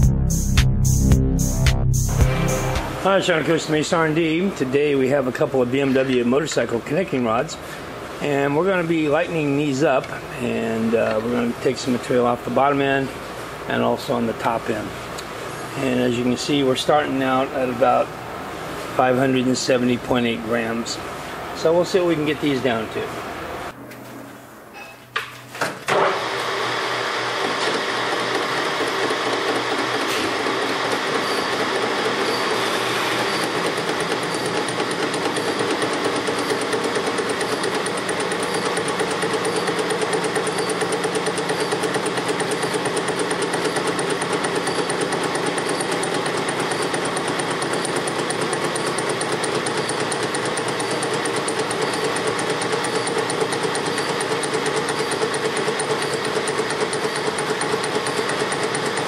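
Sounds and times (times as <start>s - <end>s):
metal lathe running: 25.9s - 59.0s.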